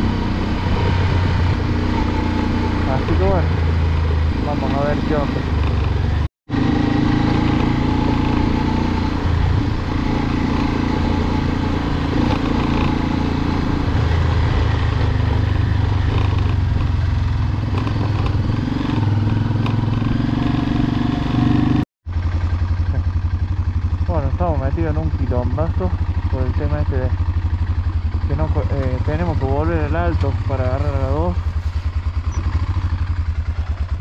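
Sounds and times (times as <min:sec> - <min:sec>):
rushing wind noise: 0:00.0 - 0:21.8
motorcycle engine running: 0:00.0 - 0:34.0.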